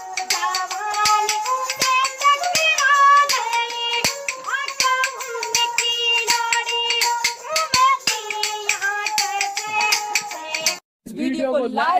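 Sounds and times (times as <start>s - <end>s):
boy singing: 0.0s - 10.8s
hand percussion clicks: 0.0s - 10.8s.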